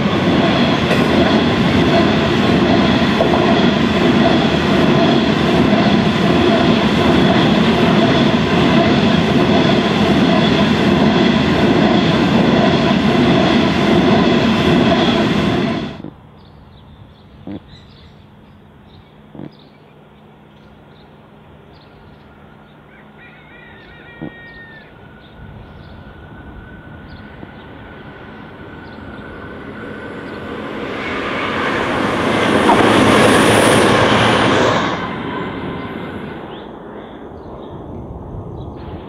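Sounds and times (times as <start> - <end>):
diesel train passing: 0.0 - 39.0
faint outdoor background: 15.9 - 39.0
bird chirp: 16.0 - 26.2, 27.0 - 29.6.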